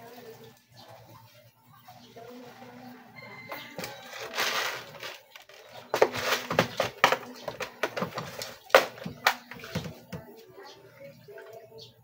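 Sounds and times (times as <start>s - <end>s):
plastic box rustle: 3.7s - 10.2s.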